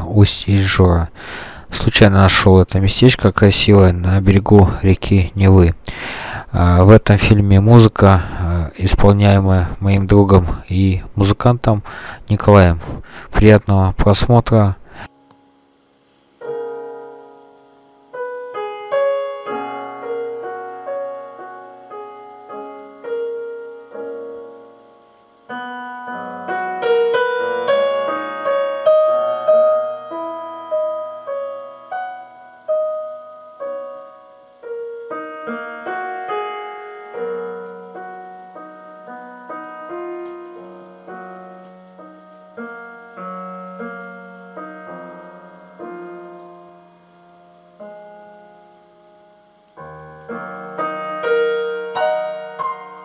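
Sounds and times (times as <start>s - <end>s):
solo piano: 15.2s - 53.0s.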